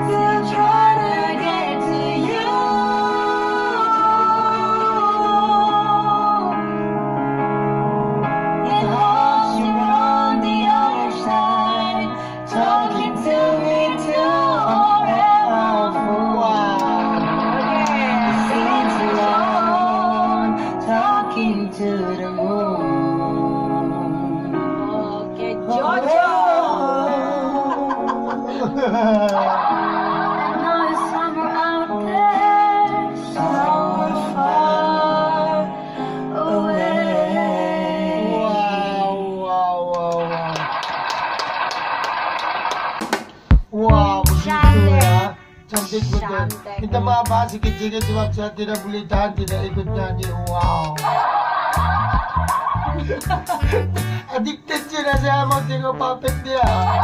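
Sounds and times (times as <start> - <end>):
instrumental accompaniment: 0.0 - 36.3, 43.0 - 57.0
woman singing slow melody: 8.6 - 17.0, 17.6 - 28.1, 30.5 - 39.0, 44.4 - 45.4
man singing lower part: 43.8 - 51.0.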